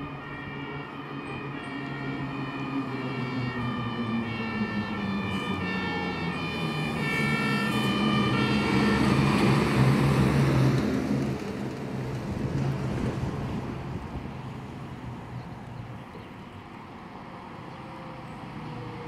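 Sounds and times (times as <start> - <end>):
two-tone fire engine siren: 0.0 - 10.9
diesel truck driving past: 0.0 - 19.0.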